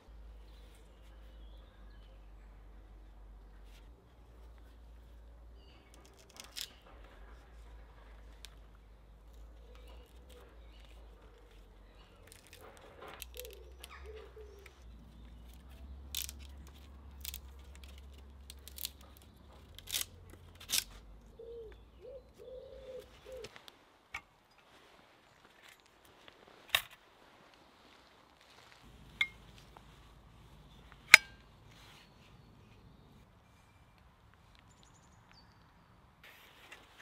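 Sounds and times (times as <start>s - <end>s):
tools clicking on wood: 12.3s - 14.7s, 15.5s - 20.9s
pigeon cooing: 13.4s - 14.8s, 21.3s - 23.5s.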